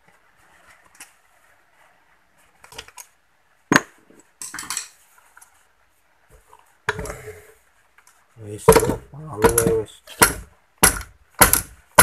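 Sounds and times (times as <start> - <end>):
metal tools knocking on metal: 8.7 - 10.4.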